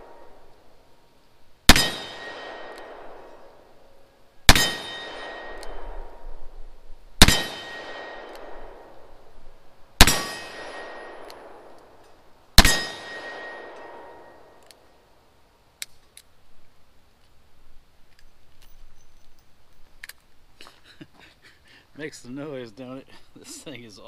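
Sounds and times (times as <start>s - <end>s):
revolver gunshots with echo: 1.7s - 3.6s, 4.5s - 6.3s, 7.2s - 9.2s, 10.0s - 11.8s, 12.6s - 14.5s.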